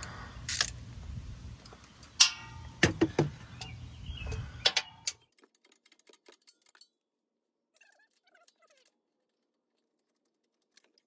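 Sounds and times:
metal tools clanking: 2.1s - 3.3s.

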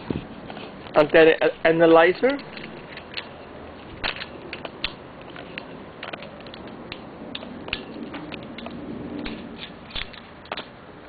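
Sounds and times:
handling clicks and rubbing: 4.0s - 10.7s.

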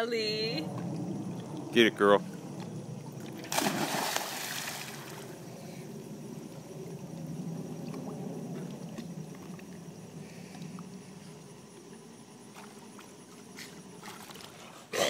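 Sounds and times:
pool water lapping and sloshing: 0.7s - 15.0s
dog splashing into pool: 3.3s - 5.3s.

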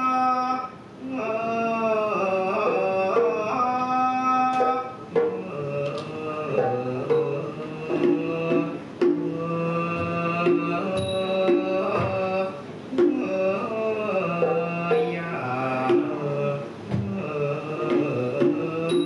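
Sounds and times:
drum strokes: 4.4s - 19.0s.

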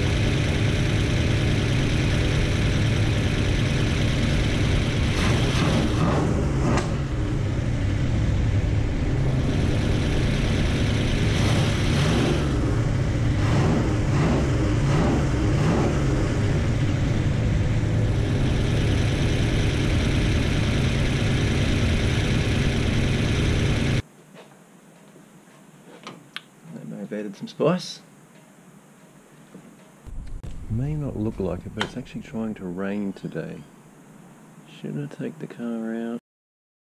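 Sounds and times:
car engine idling: 0.0s - 24.0s, 30.1s - 32.9s.

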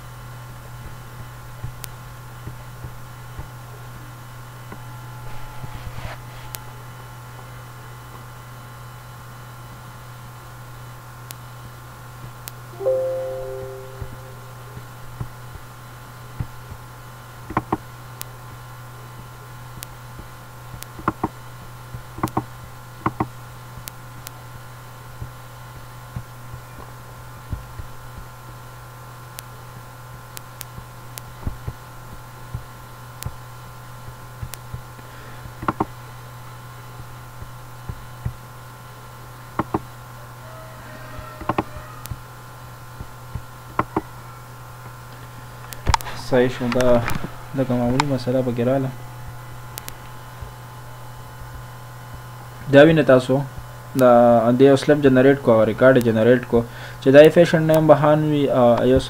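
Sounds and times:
steady low hum: 42.1s - 57.1s.

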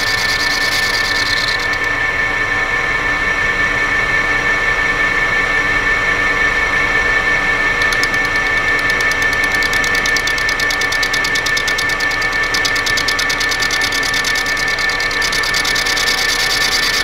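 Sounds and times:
metal lathe whining: 0.0s - 2.8s, 7.7s - 17.0s.

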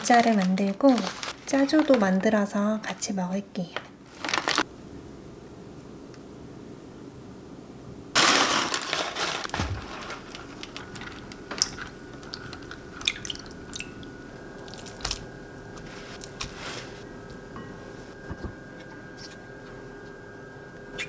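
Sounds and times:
small water splashes: 12.3s - 15.2s.

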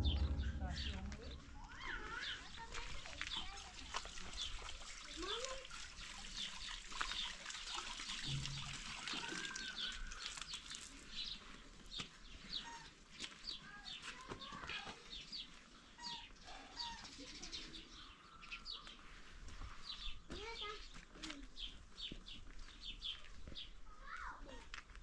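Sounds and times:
birds chirping: 0.0s - 4.6s.

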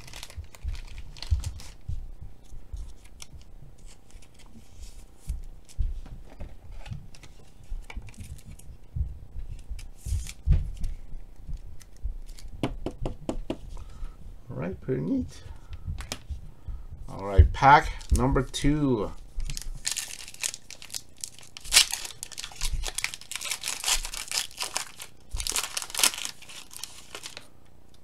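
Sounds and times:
low thumps of handling: 5.3s - 13.8s.

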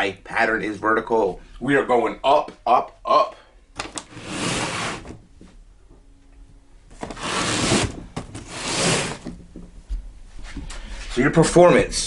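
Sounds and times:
cardboard box scraping on table: 4.1s - 5.2s, 7.0s - 9.4s.

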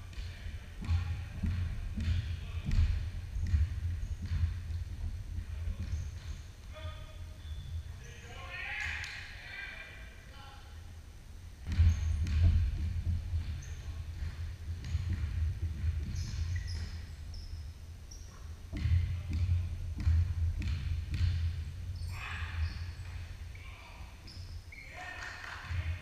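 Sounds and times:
basketball bouncing on hardwood: 0.1s - 6.4s, 11.6s - 17.6s, 18.3s - 23.3s
sneaker squeaks: 5.5s - 8.5s, 11.6s - 26.0s.

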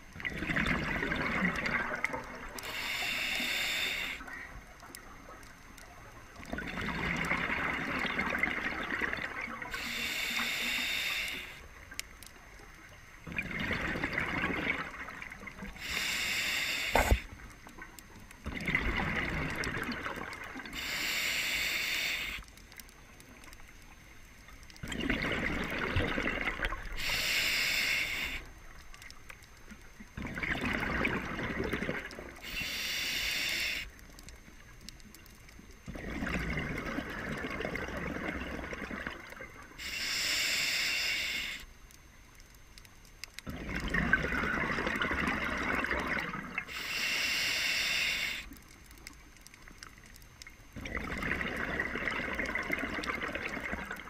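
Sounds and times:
exhaled bubbles rushing: 0.2s - 2.6s, 6.4s - 9.7s, 13.2s - 15.7s, 18.5s - 20.7s, 24.8s - 27.0s, 30.2s - 32.4s, 35.9s - 39.6s, 43.5s - 46.6s, 50.8s - 54.0s
regulator breathing hiss: 2.6s - 4.4s, 9.7s - 11.8s, 15.6s - 17.5s, 20.6s - 22.6s, 26.9s - 28.6s, 32.4s - 34.1s, 39.7s - 41.8s, 46.6s - 48.7s.

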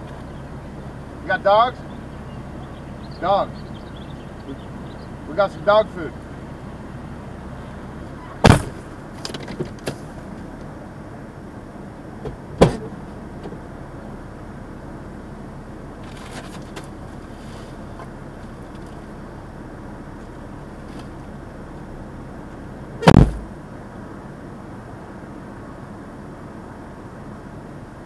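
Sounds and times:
vehicle cabin rumble: 0.0s - 28.0s
loud sharp knocks: 23.0s - 23.5s.

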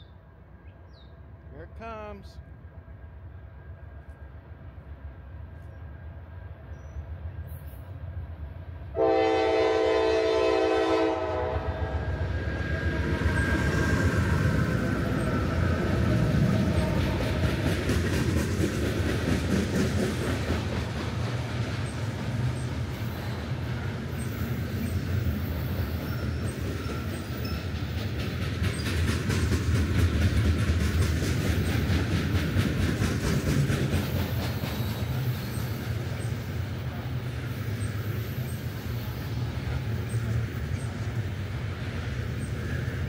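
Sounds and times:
locomotive engine rumbling: 8.7s - 43.0s
train horn: 8.9s - 12.1s
wheels clicking over rail joints: 16.0s - 36.4s.

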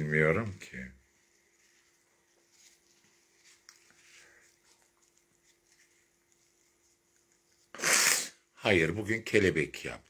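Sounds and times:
paper tissue rustling: 0.0s - 7.8s
faint steady hum: 0.0s - 10.0s.

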